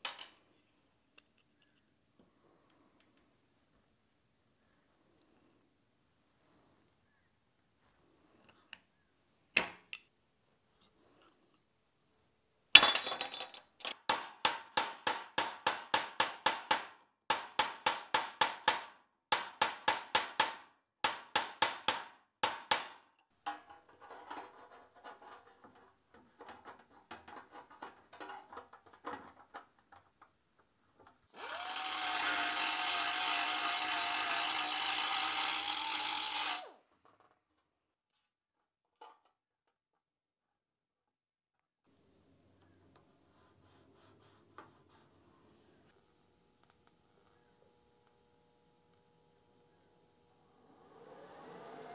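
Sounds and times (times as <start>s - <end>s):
faint scraping: 23.6s - 29.5s
power tool running: 31.3s - 36.8s, 50.3s - 51.9s.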